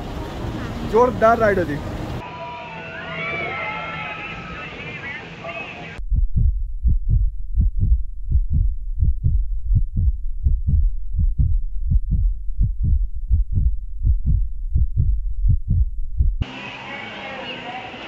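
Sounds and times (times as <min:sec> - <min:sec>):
deep heartbeat-like thumps: 0:06.0 - 0:16.4.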